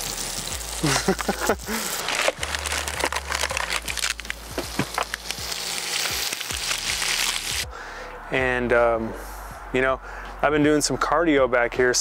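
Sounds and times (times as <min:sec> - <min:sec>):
steak sizzling in a frying pan: 0:00.0 - 0:07.6.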